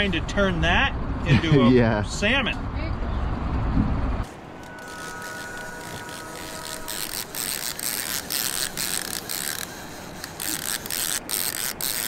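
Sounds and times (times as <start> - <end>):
fishing reel clicking and whirring: 4.6 - 12.0.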